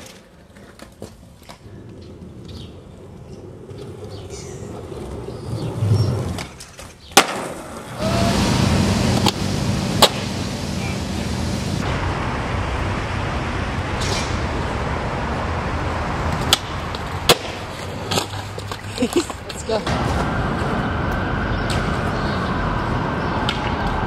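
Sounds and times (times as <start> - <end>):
skateboard clacking on ground: 0.0 - 8.0, 16.3 - 20.2
skateboard wheels rolling on concrete: 0.0 - 24.0.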